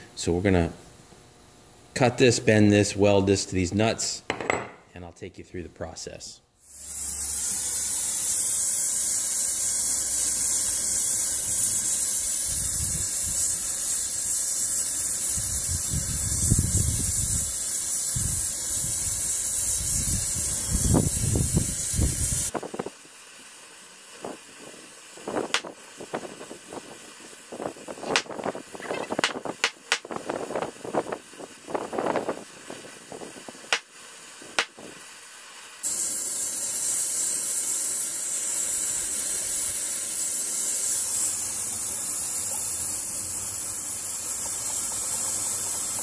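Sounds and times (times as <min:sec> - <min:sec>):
gas torch hissing: 0:06.6 - 0:46.0.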